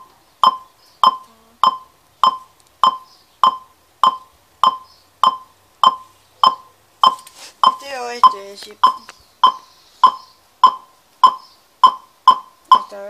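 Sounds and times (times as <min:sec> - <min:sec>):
receiver short beeps: 0:00.4 - 0:12.9.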